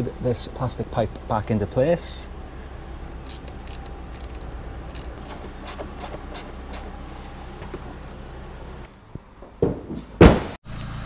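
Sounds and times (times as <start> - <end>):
steady low hum: 0.0 - 9.3
plastic parts rubbing and clicking: 3.2 - 6.9.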